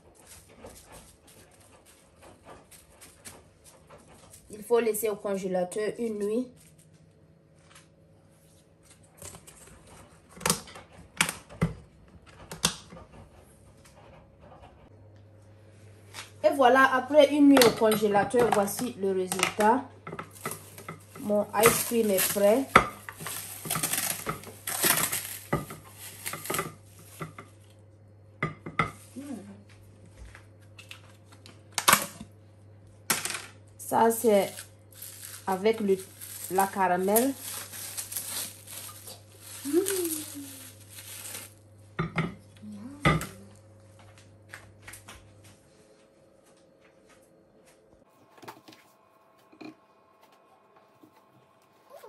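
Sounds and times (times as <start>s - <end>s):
plastic film crinkling: 20.3s - 27.3s, 33.9s - 41.6s
cling film rustling: 34.3s - 41.6s.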